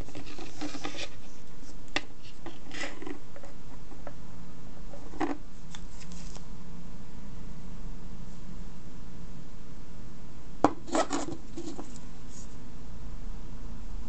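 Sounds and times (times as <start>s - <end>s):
drive casing scraping on wood: 0.0s - 1.4s
low background hum: 0.0s - 14.0s.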